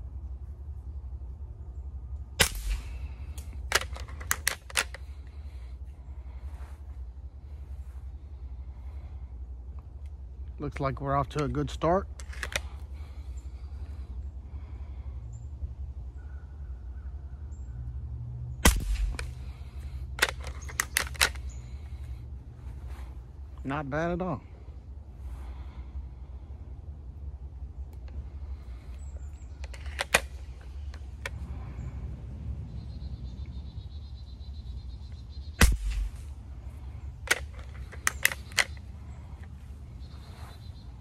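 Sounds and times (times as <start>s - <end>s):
air rifle shot: 2.4s - 4.0s, 18.6s - 21.4s, 35.6s - 36.4s
sharp clicks and knocks: 2.4s - 5.0s.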